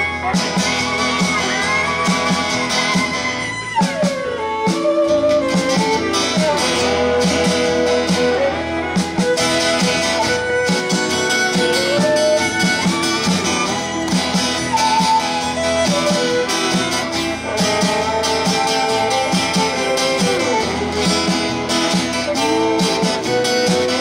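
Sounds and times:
fiddle lead line: 0:00.0 - 0:24.0
guitar: 0:00.0 - 0:24.0.

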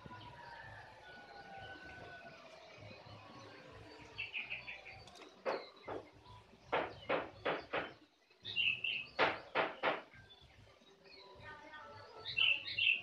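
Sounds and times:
higher bird chirps: 0:02.8 - 0:11.4, 0:12.0 - 0:13.0.

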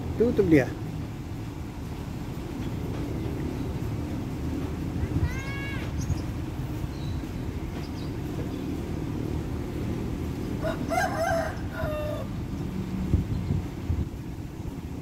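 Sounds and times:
steady low rumble: 0:00.0 - 0:15.0
rooster crowing: 0:10.6 - 0:12.4.

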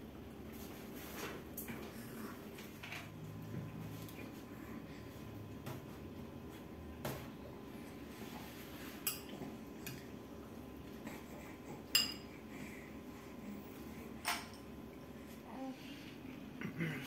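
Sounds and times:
spoon clinking on ceramic bowl: 0:11.9 - 0:12.2.

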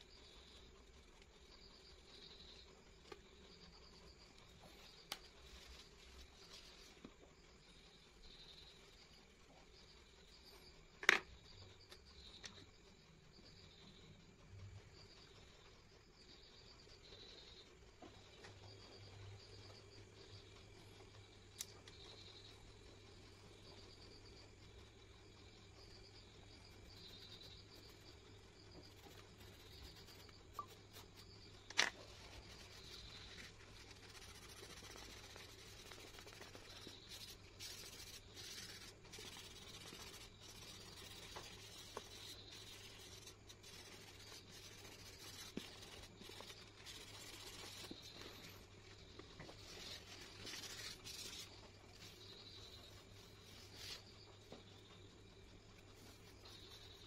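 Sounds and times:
pencil scratching on paper: 0:04.0 - 0:07.1, 0:21.9 - 0:57.0
hand brushing across paper: 0:31.8 - 0:48.6, 0:49.4 - 0:52.2.

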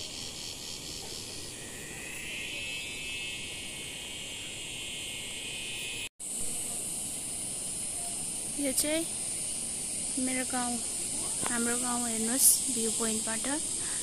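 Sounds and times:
insect pulsing chirp: 0:00.0 - 0:14.0
insects buzzing: 0:00.0 - 0:14.0.

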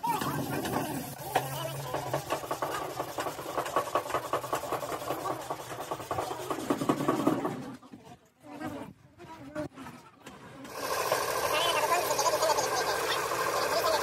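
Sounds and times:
blade scraping plastic: 0:00.0 - 0:07.8.

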